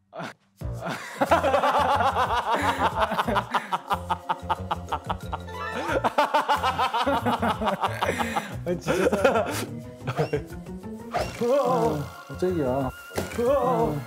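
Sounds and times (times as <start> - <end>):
people laughing hard: 0.8 - 10.6.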